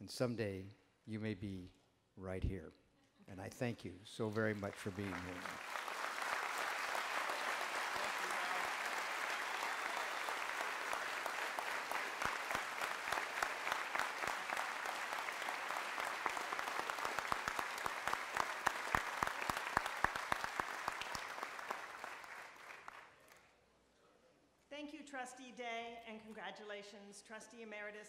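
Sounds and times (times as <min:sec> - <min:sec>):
audience applauding: 0:04.2 - 0:23.3
sharp individual claps: 0:04.9 - 0:23.4.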